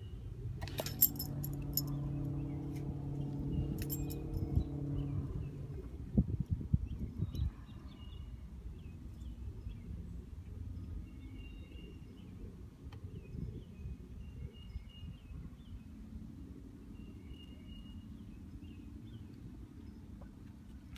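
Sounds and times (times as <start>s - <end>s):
low steady rumble: 0.0s - 7.6s.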